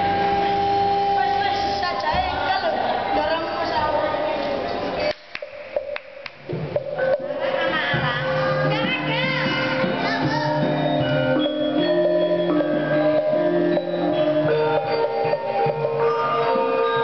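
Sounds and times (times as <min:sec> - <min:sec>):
gamelan metallophones: 0:06.8 - 0:17.0.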